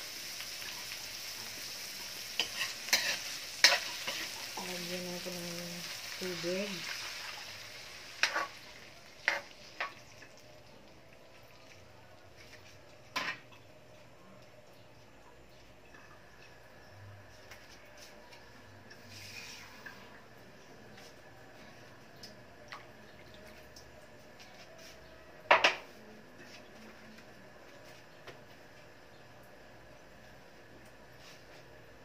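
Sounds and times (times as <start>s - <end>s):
vegetables sizzling in oil: 0.0s - 13.4s.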